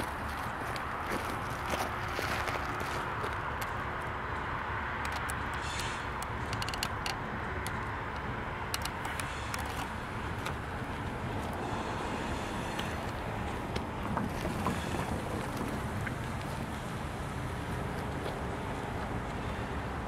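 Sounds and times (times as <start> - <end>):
diesel locomotive rumbling: 0.0 - 20.0
sharp clicks: 5.0 - 10.6.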